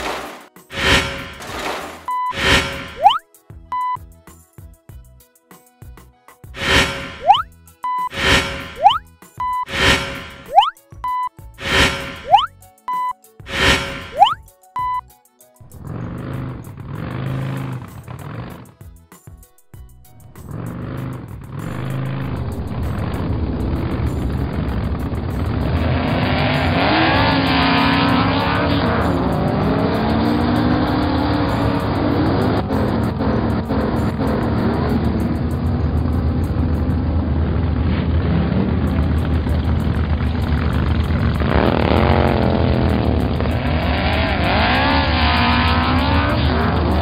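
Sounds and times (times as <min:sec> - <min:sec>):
engine revving: 0:00.7 - 0:03.2, 0:06.6 - 0:09.0, 0:09.6 - 0:10.7, 0:11.6 - 0:12.5, 0:13.5 - 0:14.4, 0:15.6 - 0:18.8, 0:20.0 - 0:47.0
race car engines running: 0:15.7 - 0:18.7, 0:20.0 - 0:47.0.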